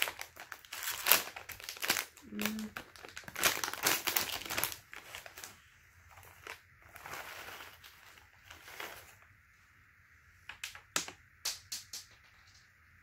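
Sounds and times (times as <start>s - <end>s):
plastic snack bag rustling: 0.0s - 9.4s.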